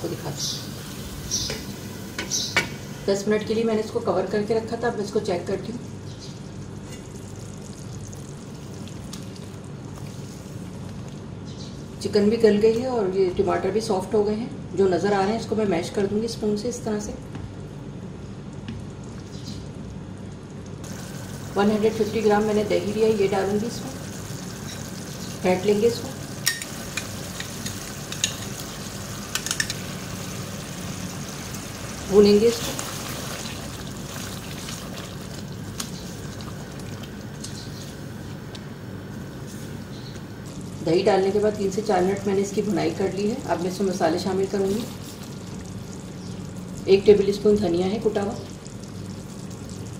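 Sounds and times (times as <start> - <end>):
chicken sizzling in gravy: 20.8 - 38.0
curry bubbling in a pot: 30.1 - 37.8, 44.5 - 49.9.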